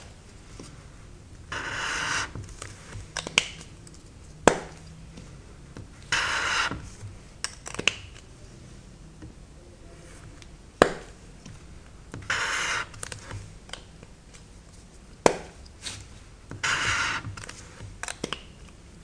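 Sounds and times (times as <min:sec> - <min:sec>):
marker scratching on paper: 0:01.5 - 0:02.4, 0:06.1 - 0:07.0, 0:12.2 - 0:13.0, 0:16.6 - 0:17.8.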